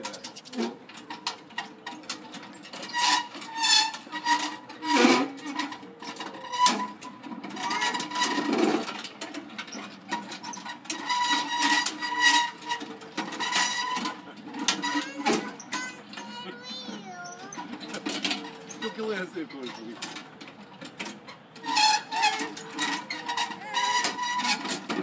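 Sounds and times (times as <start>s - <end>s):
swing pivot squealing: 9.7s - 20.0s, 21.2s - 25.0s.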